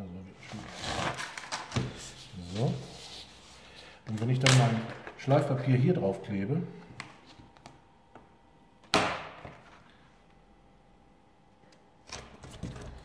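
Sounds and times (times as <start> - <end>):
hands rubbing abrasive paper: 1.9 - 3.9.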